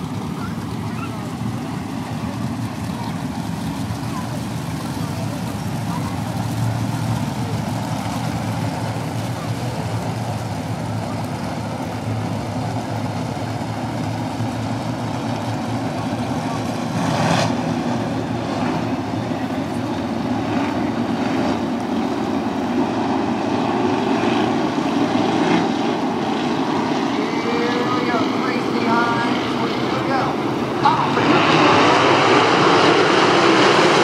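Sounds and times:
racing car engines droning: 0.0s - 34.0s.

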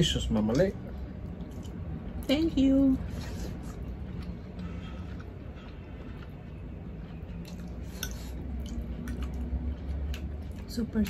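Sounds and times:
chewing mouth noises: 3.0s - 11.0s.

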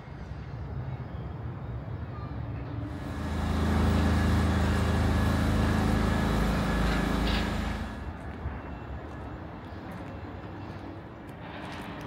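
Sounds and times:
large engine passing: 2.9s - 8.2s.

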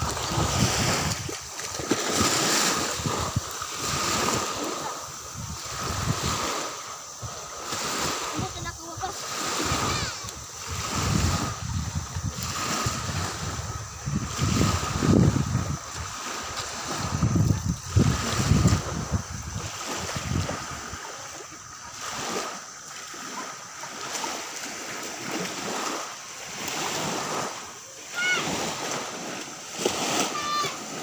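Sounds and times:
wind buffeting microphone: 0.0s - 22.5s
small waves lapping on shore: 0.0s - 31.0s.

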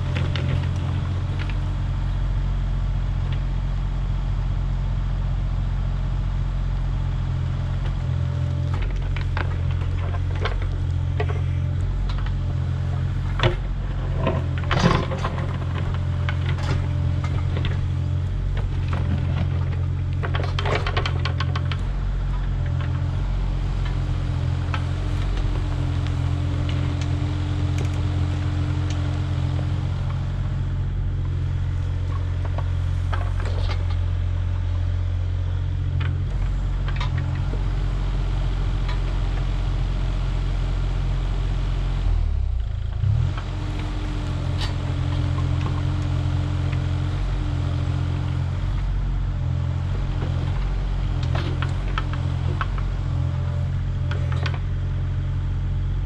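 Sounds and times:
diesel engine running: 0.0s - 56.0s
excavator bucket clunks: 8.7s - 23.2s, 31.7s - 34.6s.

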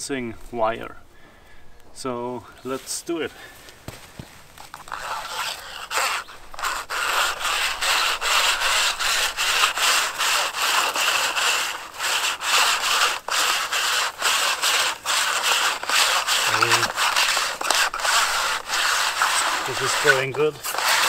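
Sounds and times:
wire scraping inside plastic pipe: 4.6s - 21.0s.

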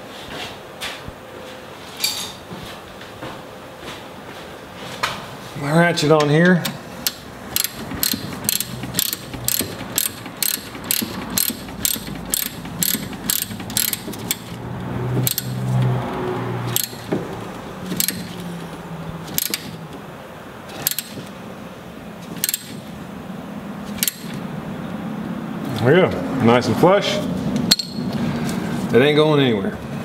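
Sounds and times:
hand ratchet clicking: 6.6s - 14.6s, 15.2s - 16.0s, 16.7s - 17.2s, 17.9s - 18.5s, 19.2s - 19.8s, 20.7s - 21.3s, 22.4s - 22.9s, 24.0s - 24.4s, 27.7s - 28.0s.

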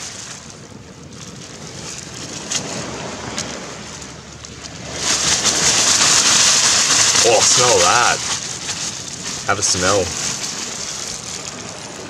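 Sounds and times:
faint rustles and clicks: 4.3s - 12.0s.

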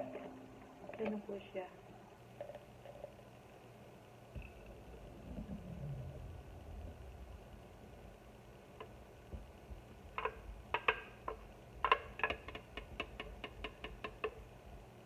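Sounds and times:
spoon tapping plastic jug: 10.2s - 14.4s.

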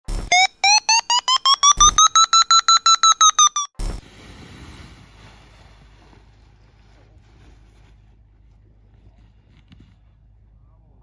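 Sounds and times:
rapid electronic beeps: 0.2s - 3.8s.

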